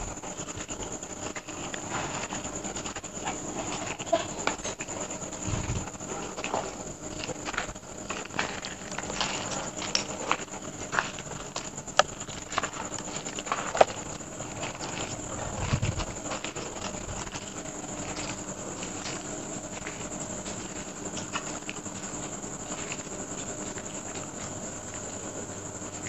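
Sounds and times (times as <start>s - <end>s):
faint steady hum: 0.0s - 26.0s
footsteps on ground: 5.4s - 24.5s.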